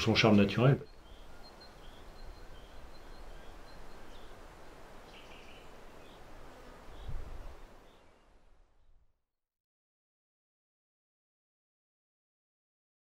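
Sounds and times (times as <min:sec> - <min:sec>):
bird chirps: 0:00.0 - 0:09.0.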